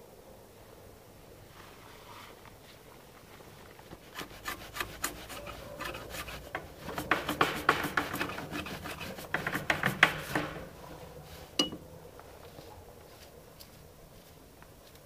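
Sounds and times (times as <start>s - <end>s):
knife scraping wooden stick: 4.0s - 10.7s, 12.4s - 15.0s.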